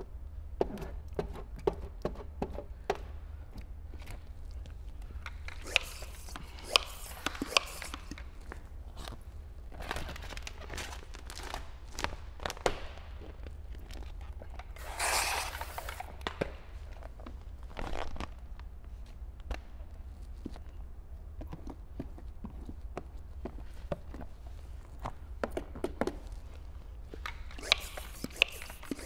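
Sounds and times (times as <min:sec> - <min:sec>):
short hiss: 0:05.6 - 0:08.2, 0:14.8 - 0:16.1, 0:27.6 - 0:29.0
plastic film crinkling: 0:09.7 - 0:14.2.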